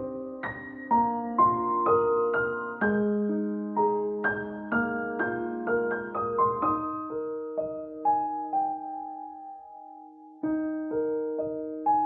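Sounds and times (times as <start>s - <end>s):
slow gentle piano music: 0.0s - 12.0s.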